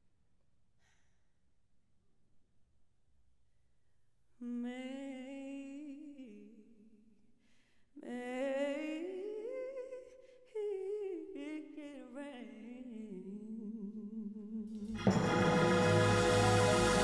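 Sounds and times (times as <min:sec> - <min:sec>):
woman singing: 0:04.4 - 0:07.1, 0:08.0 - 0:15.3.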